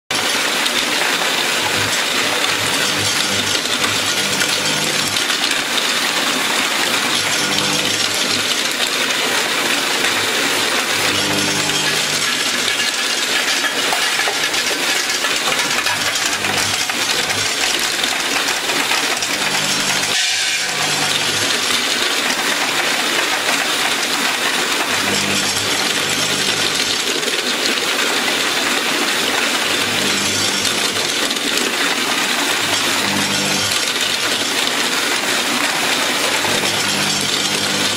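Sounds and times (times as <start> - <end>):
softgels rattling in packaging machine: 0.1 - 37.9
low machine hum: 1.6 - 5.3, 6.9 - 8.8, 10.8 - 14.8, 19.0 - 21.9, 24.8 - 27.0, 29.7 - 31.3, 32.6 - 34.4.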